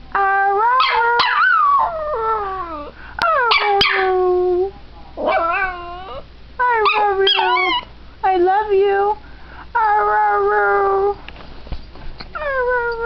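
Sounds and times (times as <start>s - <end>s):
small dog howling: 0.2s - 4.3s, 5.2s - 7.9s.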